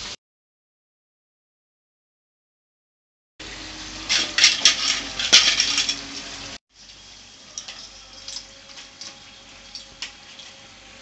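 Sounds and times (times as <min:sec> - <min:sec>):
dough frying in hot oil: 0:03.4 - 0:11.0.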